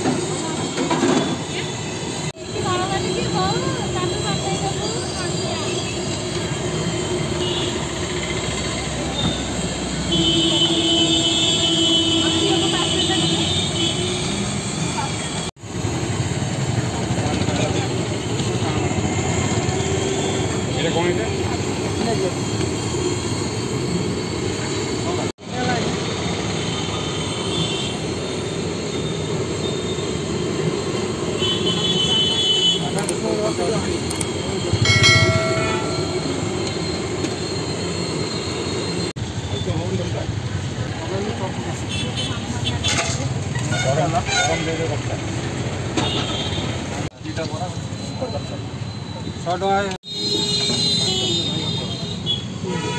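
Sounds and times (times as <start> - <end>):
street traffic: 0.0 - 52.9
faint high squeal: 33.3 - 39.9
steady tone: 34.8 - 39.0.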